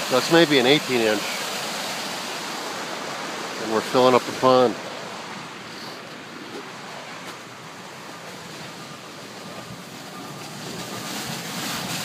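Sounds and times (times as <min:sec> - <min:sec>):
storm water rushing through pipe: 0:00.0 - 0:12.0.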